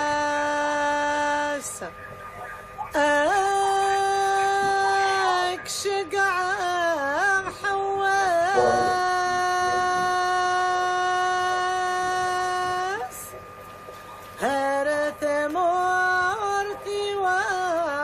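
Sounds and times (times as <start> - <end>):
solo voice singing held notes: 8.2 - 10.4
background music: 8.6 - 9.1.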